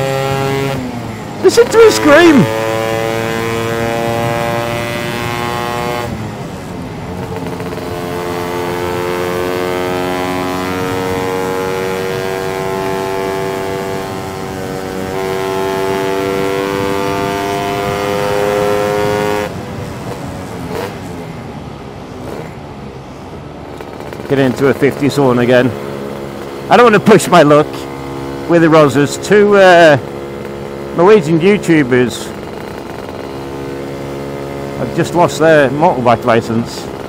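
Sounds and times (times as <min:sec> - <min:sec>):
two-stroke scooter engine screaming: 0:00.0 - 0:06.1, 0:07.2 - 0:20.9, 0:23.8 - 0:37.0.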